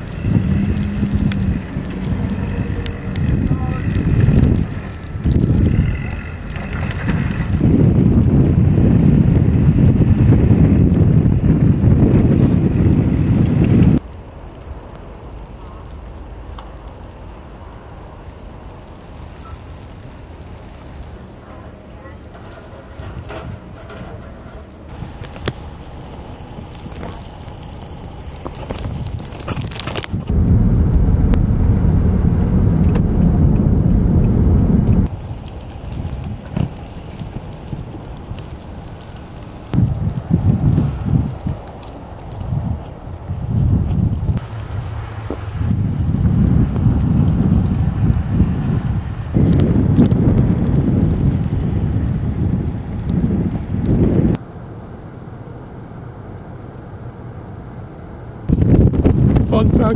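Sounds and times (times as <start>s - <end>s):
faint street and traffic noise: 0.0s - 11.6s, 12.6s - 30.3s
wind buffeting microphone: 0.0s - 54.4s, 58.4s - 59.9s
car driving on snowy road: 0.0s - 59.9s.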